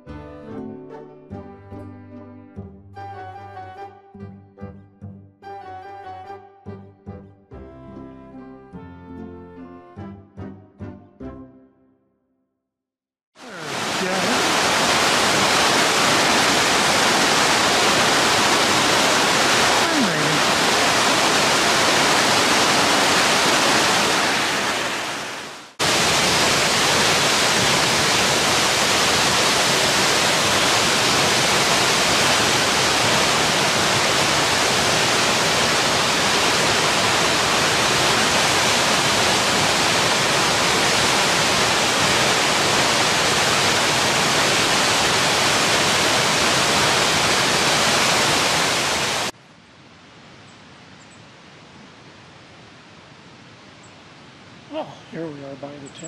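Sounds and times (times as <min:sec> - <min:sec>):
waterfall rushing onto rocks: 0:13.4 - 0:49.4.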